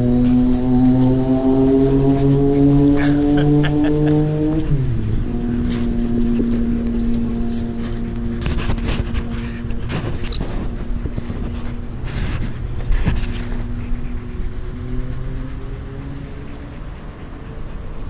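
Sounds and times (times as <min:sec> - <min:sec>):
faint steady drone: 0:04.6 - 0:18.0
camera handling rumble: 0:05.6 - 0:13.8.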